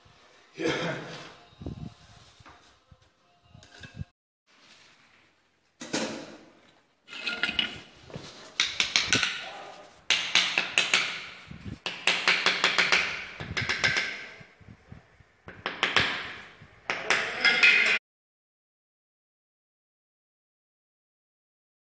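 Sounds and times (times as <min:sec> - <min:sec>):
sharp taps on tiles: 0:08.6 - 0:09.5, 0:10.1 - 0:14.3, 0:15.5 - 0:17.3.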